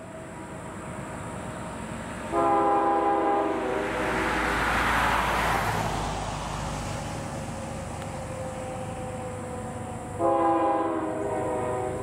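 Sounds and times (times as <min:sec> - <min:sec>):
train rushing noise: 0:00.0 - 0:12.0
locomotive air horn: 0:02.3 - 0:04.2, 0:09.5 - 0:12.0.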